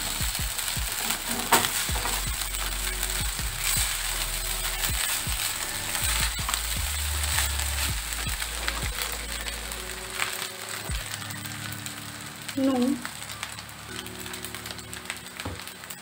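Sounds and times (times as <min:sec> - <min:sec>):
wooden spatula scraping pan: 0:00.9 - 0:02.2.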